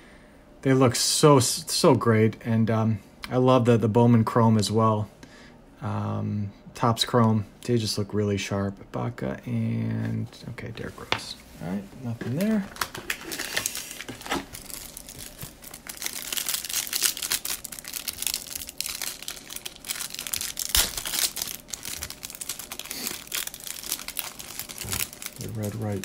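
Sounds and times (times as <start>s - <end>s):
card pack wrapper crackling: 12.3s - 26.0s.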